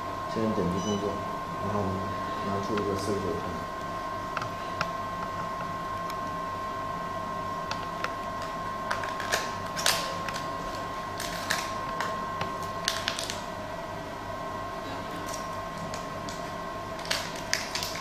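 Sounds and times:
plastic packaging clicks and crackles: 7.7s - 13.4s, 15.2s - 18.0s.

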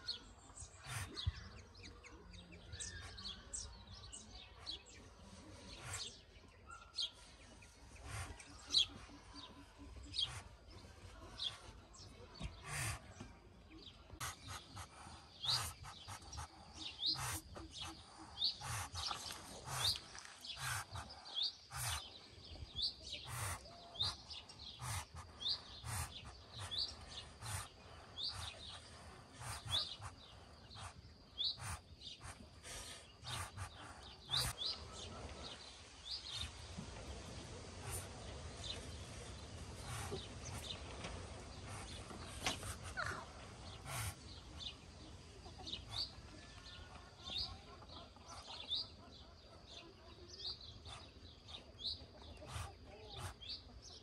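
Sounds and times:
ducklings peeping: 0.7s - 1.4s, 14.1s - 35.1s, 41.6s - 44.8s.

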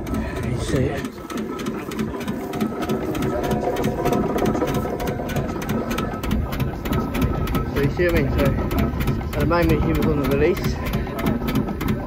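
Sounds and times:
low rumble: 0.0s - 7.8s
steam engine mechanical clatter: 0.0s - 12.0s.

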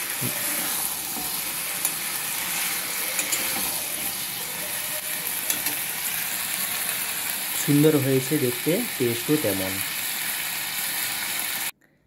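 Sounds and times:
spatula scraping a pan: 0.0s - 6.0s
food sizzling in a metal pan: 0.0s - 11.7s.

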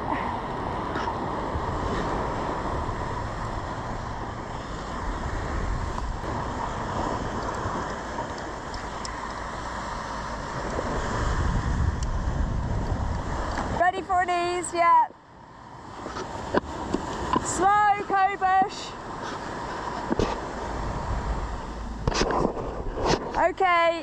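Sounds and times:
wind buffeting microphone: 0.0s - 15.1s, 15.9s - 24.0s
rush of ocean: 0.0s - 24.0s.

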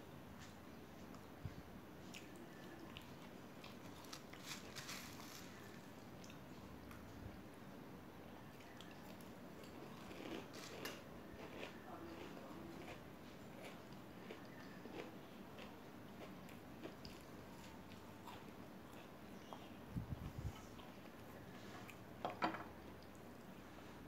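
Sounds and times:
crunchy chewing: 2.0s - 7.2s, 8.4s - 22.2s.

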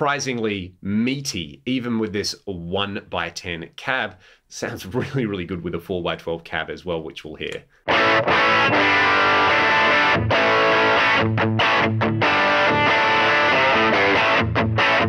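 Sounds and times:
electric guitar playing: 7.8s - 15.0s.

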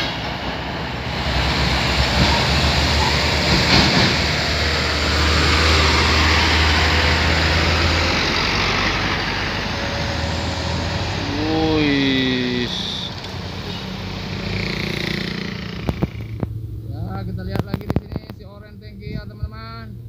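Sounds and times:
diesel trucks passing: 0.0s - 18.7s.

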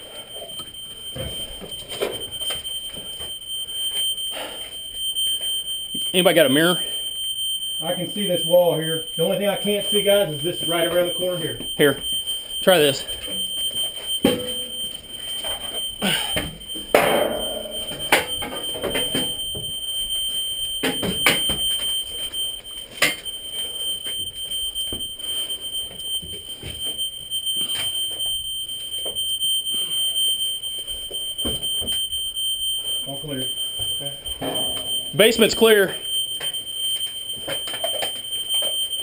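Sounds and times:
smoke alarm tone: 0.0s - 39.0s.

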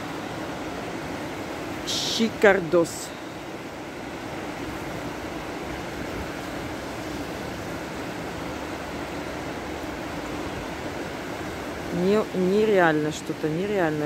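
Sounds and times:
river rushing over rocks: 0.0s - 14.0s.

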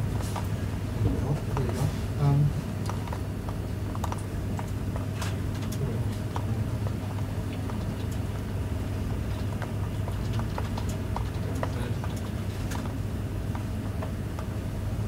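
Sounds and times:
steady low hum: 0.0s - 15.0s
light clicks and taps: 9.2s - 14.5s.

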